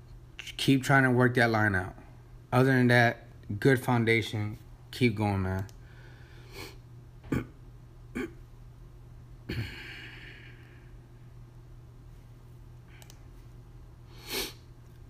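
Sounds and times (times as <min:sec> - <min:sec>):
steady low hum: 0:00.0 - 0:15.0
soft computer clicks: 0:13.0 - 0:13.3.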